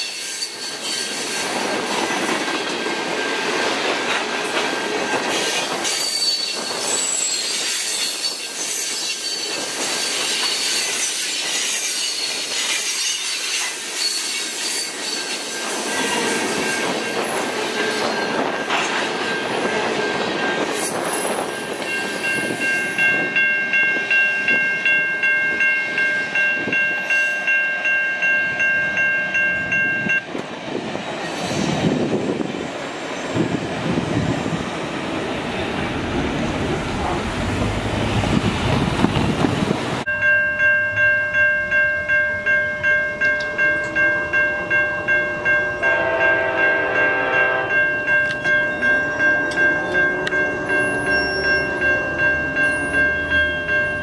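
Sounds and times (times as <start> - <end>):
steel wheel squeal: 0.0 - 1.8, 4.6 - 23.1, 49.4 - 54.0
crossing warning bell ringing: 0.0 - 30.4, 40.0 - 54.0
freight train rolling past: 0.0 - 54.0
rail clatter: 14.4 - 24.6, 29.8 - 40.1.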